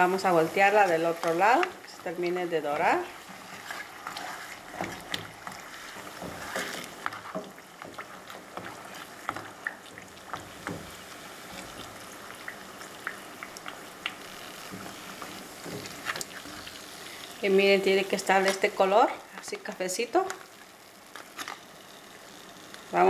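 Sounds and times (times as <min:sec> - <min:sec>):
tortillas sizzling in hot oil: 0:00.0 - 0:23.0
small pops in frying oil: 0:04.7 - 0:16.6, 0:20.2 - 0:21.7.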